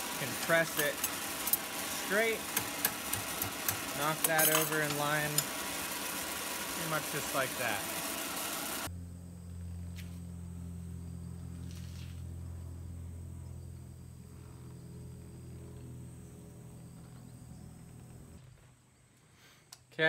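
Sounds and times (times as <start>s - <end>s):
torch flame hissing: 0.0s - 8.9s
steady low hum: 0.0s - 19.4s.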